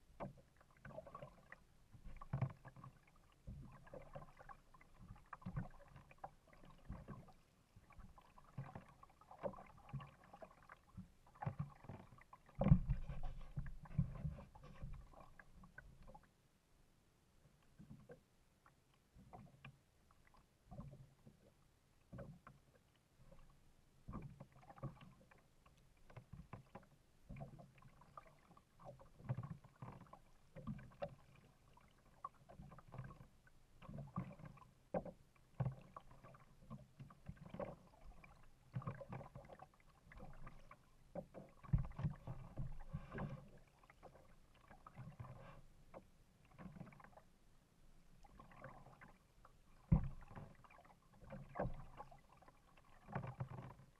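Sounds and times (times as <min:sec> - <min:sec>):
paddle splashing in water: 0:00.0 - 0:16.3, 0:22.1 - 0:47.4, 0:48.1 - 0:53.9
water slapping against hull: 0:00.0 - 0:16.3, 0:22.1 - 0:47.3, 0:48.2 - 0:53.9
low knocks on hull: 0:41.6 - 0:43.3, 0:49.9 - 0:50.4.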